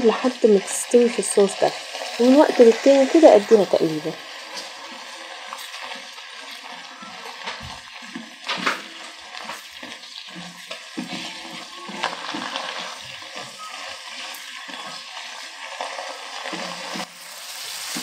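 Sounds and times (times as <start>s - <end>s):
meat sizzling in sauce: 0.0s - 18.0s
spoon knocking and scraping pan: 4.3s - 15.4s.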